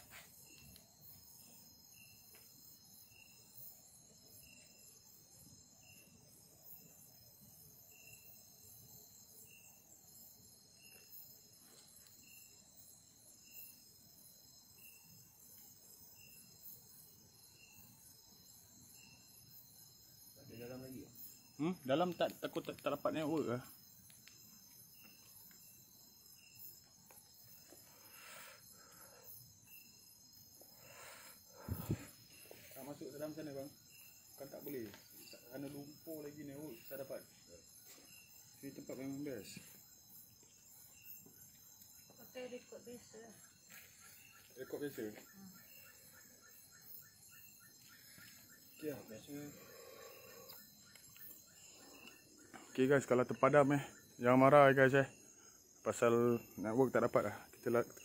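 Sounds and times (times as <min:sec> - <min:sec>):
crickets trilling: 0:00.0 - 0:58.0
short insect chirp: 0:00.0 - 0:58.0.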